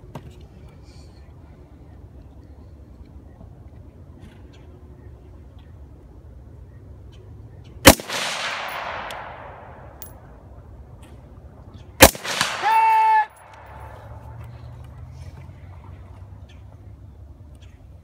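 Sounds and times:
rifle shots with echo: 7.8s - 10.2s, 12.0s - 13.9s.

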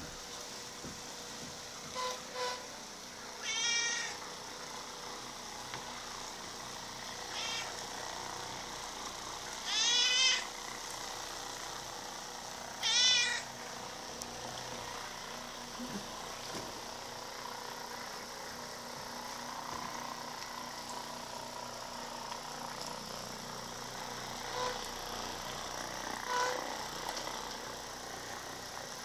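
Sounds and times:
massager motor hum: 0.0s - 29.0s
cat meowing: 3.4s - 4.2s, 7.3s - 7.8s, 9.6s - 10.5s, 12.8s - 13.5s.

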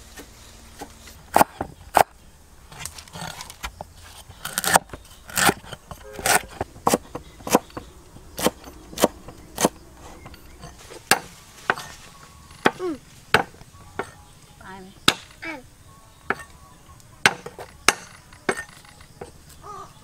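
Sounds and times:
cleaver chopping on wooden board: 0.2s - 2.1s, 2.8s - 11.9s, 12.6s - 14.2s, 15.0s - 15.4s, 17.2s - 19.4s.

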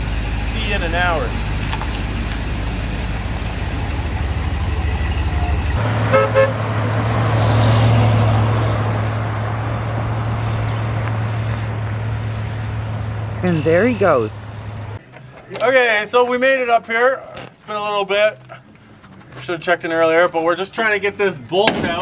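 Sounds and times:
van engine idling: 0.0s - 6.5s
van driving past: 0.0s - 15.0s
horn toots: 4.8s - 6.9s.

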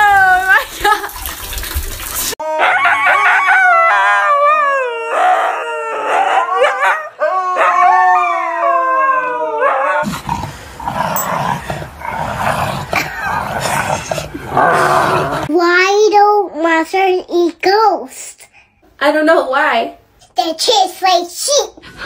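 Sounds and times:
dogs howling: 2.4s - 10.1s.

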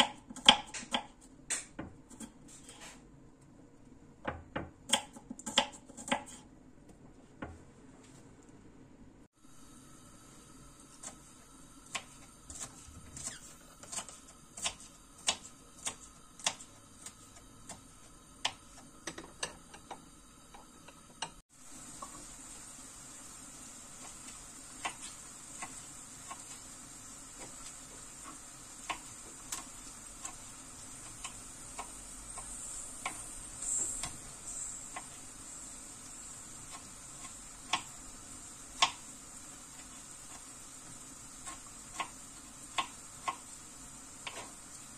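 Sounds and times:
knife chopping on wooden board: 0.0s - 2.3s
knife cutting tomatoes: 11.9s - 18.9s
steady high hiss: 14.3s - 44.9s.

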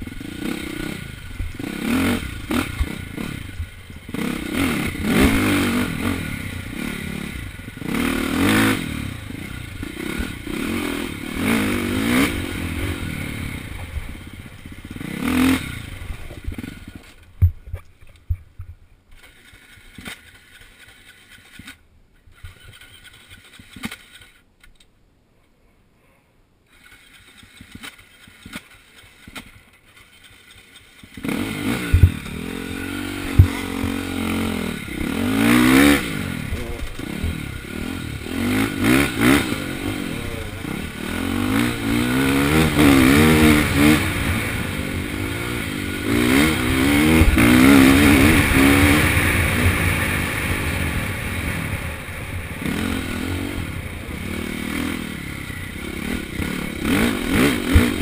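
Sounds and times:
dirt bike engine revving: 0.0s - 17.3s, 26.7s - 58.0s
scattered clicks and knocks: 22.4s - 24.9s.

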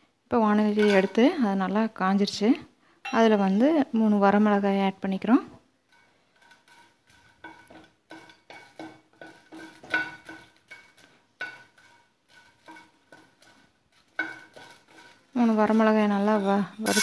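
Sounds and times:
wooden spatula knocking on pan: 7.4s - 15.8s.

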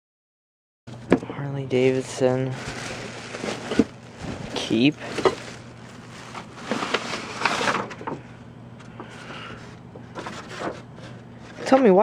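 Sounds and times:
plastic bag rustling: 1.7s - 8.3s
scraping handling noise: 1.9s - 12.0s
cardboard boxes being shifted: 2.0s - 8.2s.

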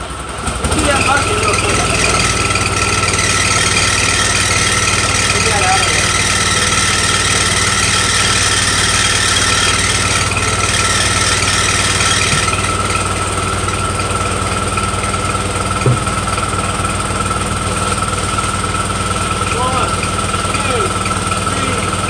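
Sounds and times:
low engine hum: 9.6s - 22.0s
short knock: 15.8s - 16.3s.

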